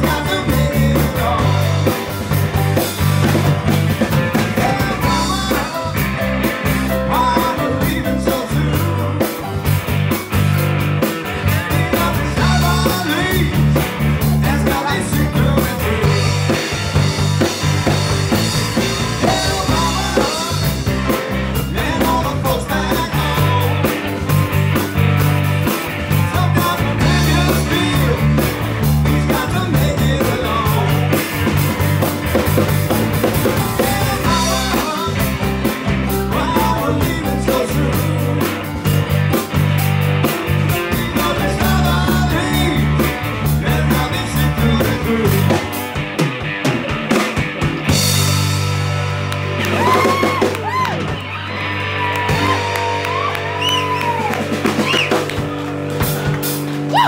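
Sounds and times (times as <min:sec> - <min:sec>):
person singing: 0:00.0 - 0:02.4, 0:04.3 - 0:09.7, 0:11.2 - 0:17.0, 0:19.0 - 0:24.3, 0:26.1 - 0:31.6, 0:33.2 - 0:39.2, 0:40.7 - 0:45.8
drum kit: 0:00.0 - 0:57.0
electric bass: 0:00.0 - 0:57.0
electric guitar: 0:00.0 - 0:57.0.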